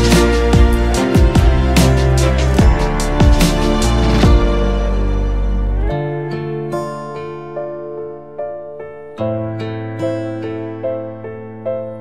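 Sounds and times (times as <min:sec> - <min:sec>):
steady bass note: 0:00.0 - 0:06.0
held low chord: 0:00.0 - 0:11.4
plucked notes: 0:00.0 - 0:12.0.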